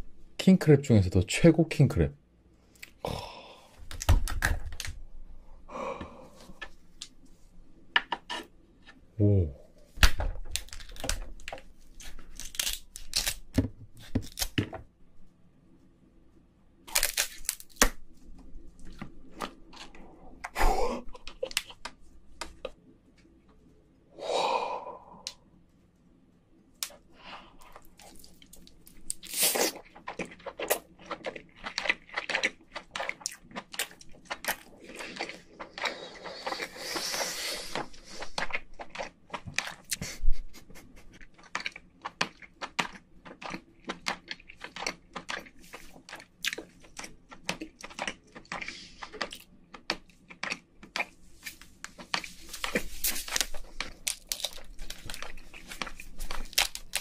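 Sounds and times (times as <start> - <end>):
crab shell cracking: 10.0 - 14.7, 16.9 - 18.0, 53.2 - 57.0
close chewing: 27.6 - 40.2, 41.1 - 57.0.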